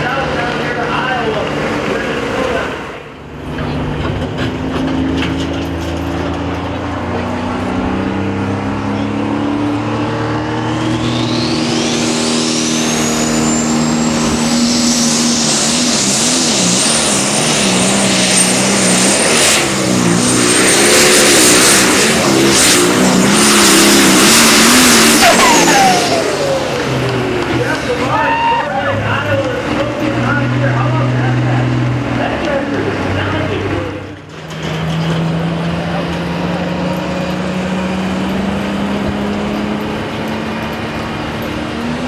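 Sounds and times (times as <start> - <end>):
diesel tractor engine under load: 0.0 - 42.0
turbo whine: 8.5 - 29.3.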